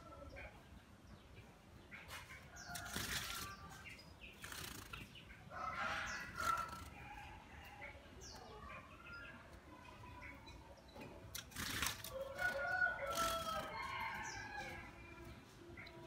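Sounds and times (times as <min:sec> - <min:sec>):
bird splashing in water: 0:11.4 - 0:12.2.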